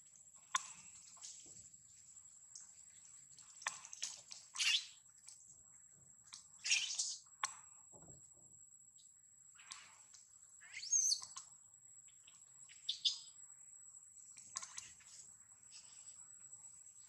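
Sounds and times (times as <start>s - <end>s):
sharp snaps: 9.6s - 10.0s.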